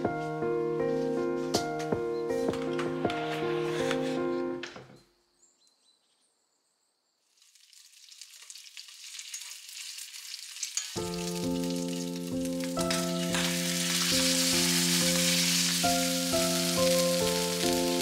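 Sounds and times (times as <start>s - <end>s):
background music with sustained notes: 0.0s - 4.9s, 11.0s - 18.0s
bacon sizzling in a pan: 7.4s - 18.0s.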